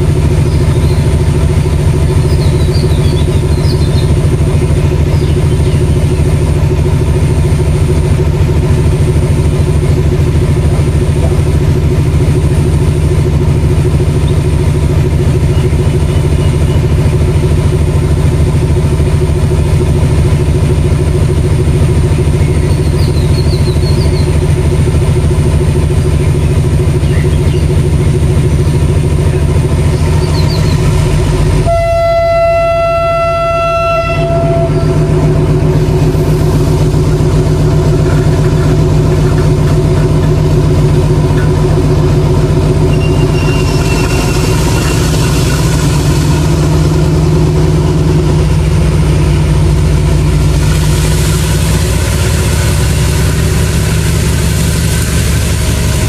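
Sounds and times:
diesel locomotive idling: 0:00.0 - 0:56.0.

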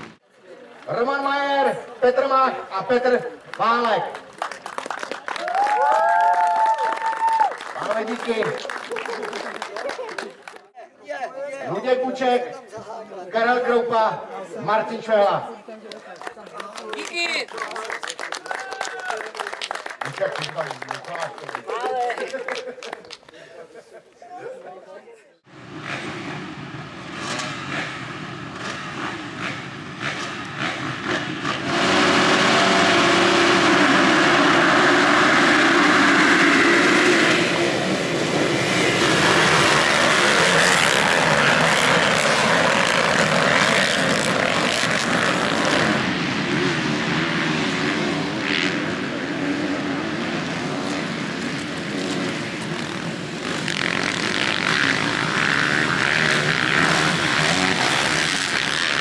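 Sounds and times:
motocross bikes revving: 0:25.5 - 0:59.0.

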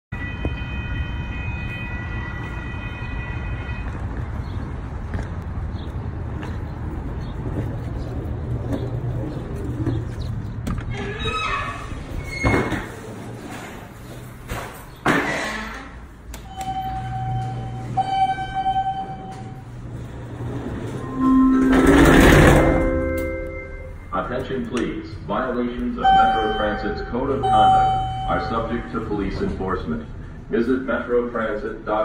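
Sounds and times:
electronic tone: 0:16.5 - 0:19.6, 0:20.9 - 0:24.1, 0:26.0 - 0:28.7.

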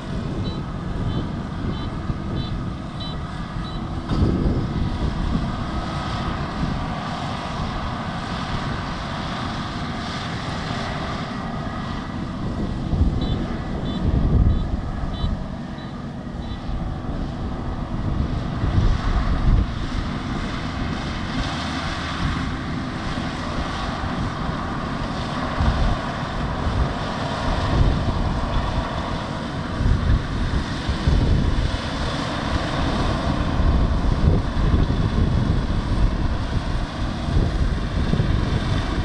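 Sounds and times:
combine harvester engine running: 0:00.0 - 0:39.0
wind gusting on microphone: 0:00.0 - 0:39.0
high beeps: 0:00.4 - 0:03.9, 0:13.2 - 0:16.6.

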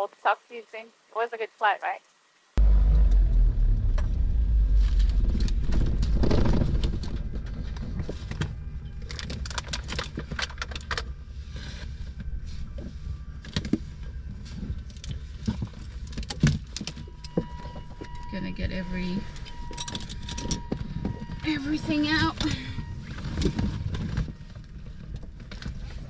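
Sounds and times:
twin aircraft engines idling: 0:02.6 - 0:26.0
cockpit handling clicks and rattles: 0:07.7 - 0:11.2.

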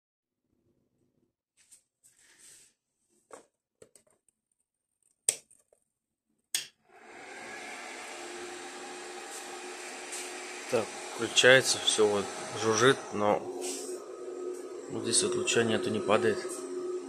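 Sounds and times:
machine buzzing hum: 0:06.9 - 0:17.0.

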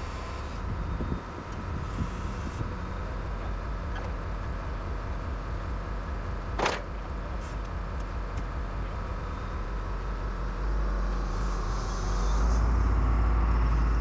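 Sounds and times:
engine running low rumble: 0:00.0 - 0:14.0.

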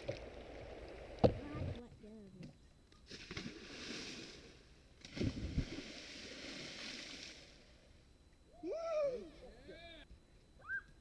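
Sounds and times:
person splashing into water: 0:03.1 - 0:07.5.

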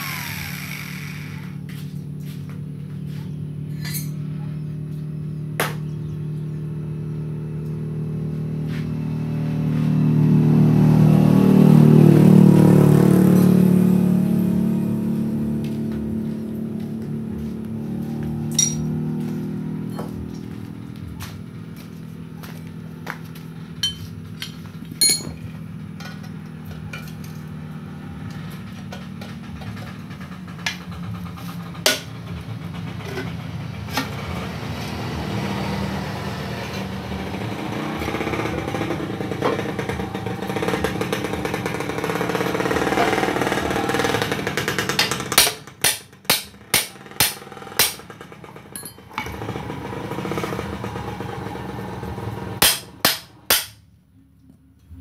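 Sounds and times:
steady mechanical drone: 0:00.0 - 0:55.0
hammer striking steel chisel: 0:18.5 - 0:18.9, 0:25.0 - 0:25.4, 0:44.9 - 0:48.0, 0:52.6 - 0:53.8
light metal clinks: 0:18.5 - 0:18.9, 0:25.0 - 0:25.4.

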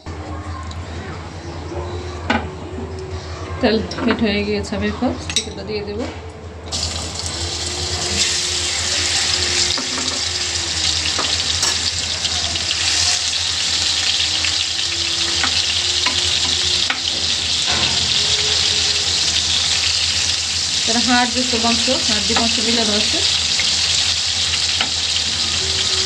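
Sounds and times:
chicken sizzling in oil: 0:06.7 - 0:26.0.

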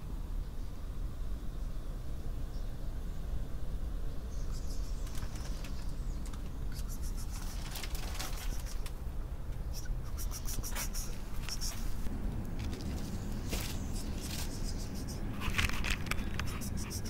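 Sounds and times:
low outdoor rumble: 0:00.0 - 0:17.0
light rustling and scratching: 0:04.6 - 0:09.0, 0:09.8 - 0:17.0
short crackles: 0:04.6 - 0:09.0.

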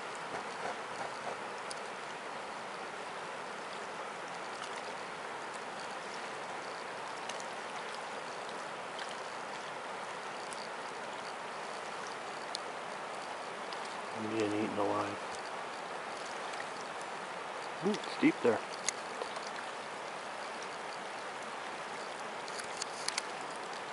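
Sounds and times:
faint clicks: 0:18.7 - 0:19.7, 0:22.0 - 0:23.9.

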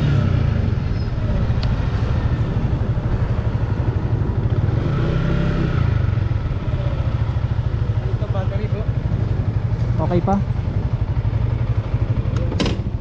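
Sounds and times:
wind rumble on microphone: 0:00.0 - 0:07.8
motorcycle engine running: 0:00.0 - 0:13.0.

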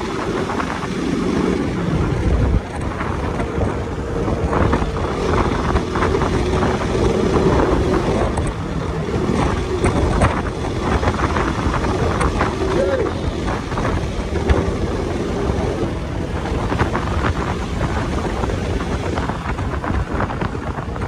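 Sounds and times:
motorcycle engine running: 0:00.0 - 0:21.0
wind buffeting microphone: 0:00.0 - 0:21.0.

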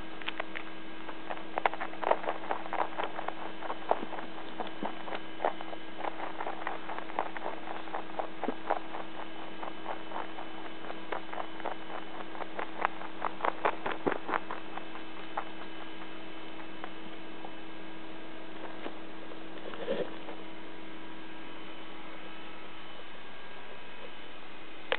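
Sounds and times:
steady electrical hum: 0:00.0 - 0:24.9
rabbit taps and clicks: 0:01.3 - 0:17.6.

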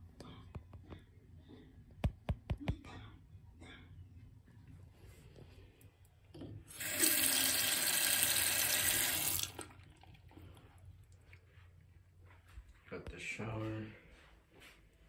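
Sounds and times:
faucet running into sink: 0:06.7 - 0:10.6.

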